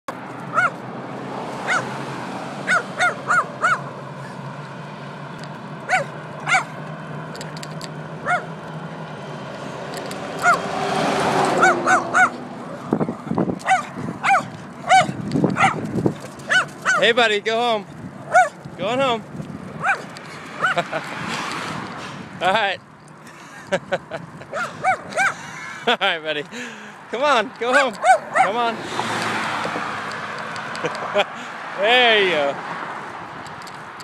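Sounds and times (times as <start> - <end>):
bicycle riding noise: 0.1 - 34.0
small dog yapping: 0.5 - 0.8, 1.6 - 1.9, 2.7 - 3.9, 5.9 - 6.8, 8.2 - 8.5, 10.4 - 10.6, 11.5 - 12.8, 13.6 - 15.8, 16.4 - 17.0, 18.3 - 18.6, 19.8 - 20.8, 24.5 - 25.4, 28.0 - 28.6.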